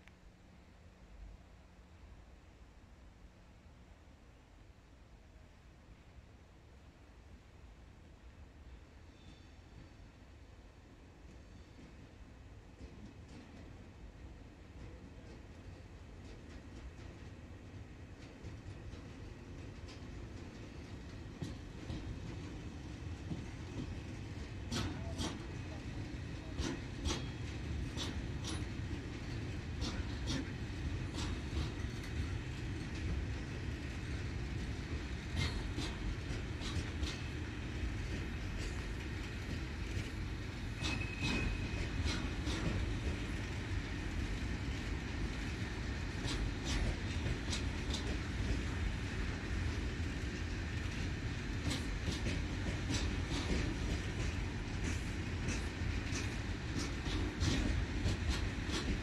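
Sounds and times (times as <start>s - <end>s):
wheels clicking over rail joints: 18.2s - 59.0s
high wheel squeal: 40.8s - 41.9s.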